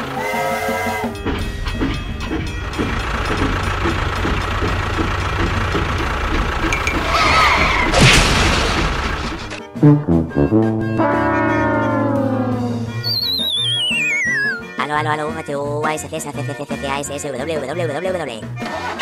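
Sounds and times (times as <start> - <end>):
toy train clacking on rails: 1.2 - 7.2
toy tractor crashing into train: 7.8 - 9.6
wavering squeal: 11.1 - 14.7.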